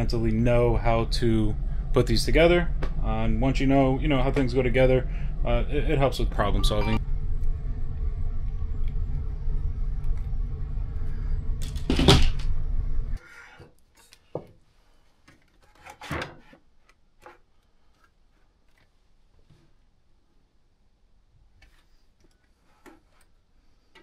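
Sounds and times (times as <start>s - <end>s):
steady low background sound: 0.0s - 13.2s.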